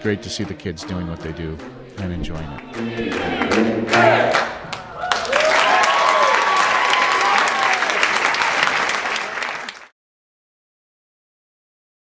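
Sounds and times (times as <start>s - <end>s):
audience applauding: 2.5s - 9.9s.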